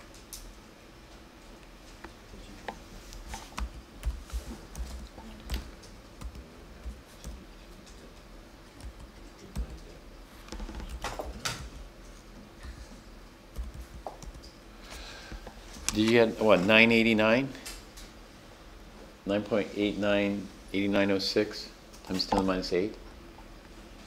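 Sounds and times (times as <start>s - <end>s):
typing on computer keyboard: 3.4s - 8.0s, 8.8s - 9.9s, 10.5s - 11.7s, 13.6s - 14.6s.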